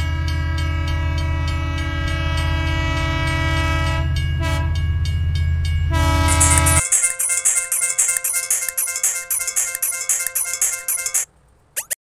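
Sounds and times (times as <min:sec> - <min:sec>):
multi-tone horn: 0:05.9 - 0:06.8.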